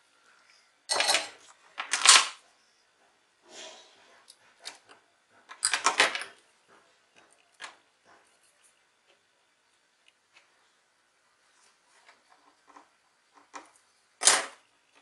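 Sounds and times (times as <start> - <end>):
rustling and clicking handling noise: 4.1 - 10.6, 11.5 - 15.0.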